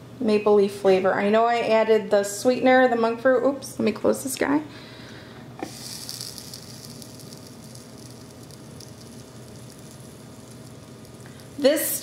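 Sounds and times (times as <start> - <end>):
batter sizzling: 5.6 - 12.0.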